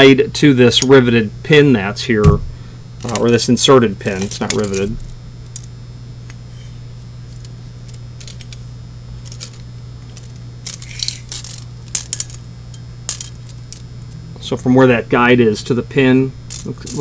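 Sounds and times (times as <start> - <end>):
low electrical hum: 0.0 - 17.0
metallic clicks and rattles: 7.3 - 8.6, 9.2 - 14.2, 16.5 - 17.0.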